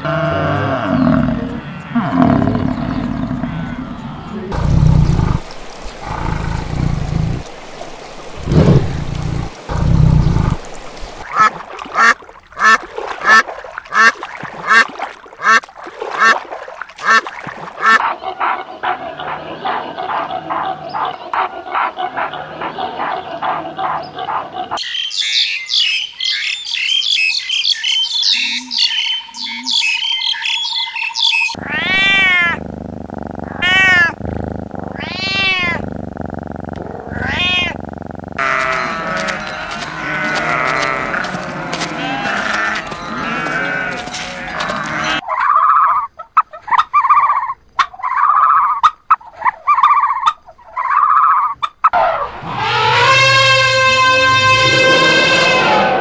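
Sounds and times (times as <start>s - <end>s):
overlapping animal calls: 0.0s - 18.6s, 31.4s - 55.8s
short evenly spaced calls: 10.9s - 14.1s, 38.4s - 52.0s
cat meowing: 31.6s - 32.6s, 33.5s - 34.2s, 34.8s - 35.8s, 37.1s - 37.8s, 38.4s - 45.2s.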